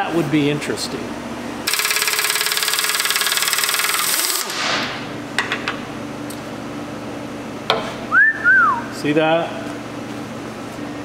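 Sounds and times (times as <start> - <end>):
impact wrench hammering: 1.7 - 5.8.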